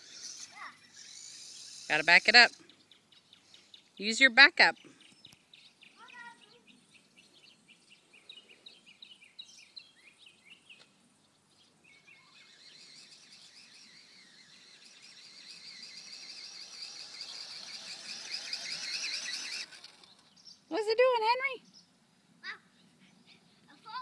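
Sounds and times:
high steady buzzing: 0.0s - 2.6s, 12.0s - 20.4s
small birds chirping: 0.0s - 24.0s.

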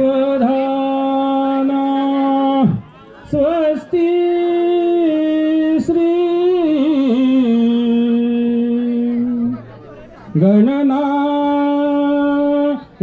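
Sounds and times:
person singing long held notes: 10.4s - 13.0s.

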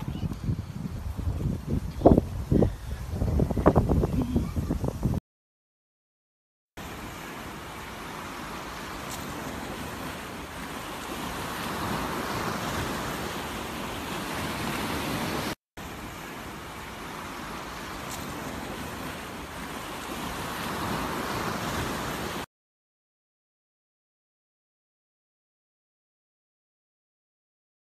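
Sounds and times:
surf washing on pebbles: 6.8s - 22.5s.

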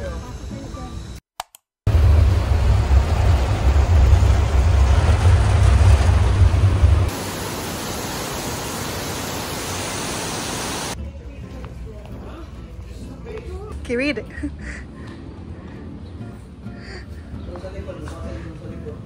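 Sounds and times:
deep vehicle rumble: 1.9s - 7.1s
heavy rain falling outdoors: 1.9s - 11.0s.

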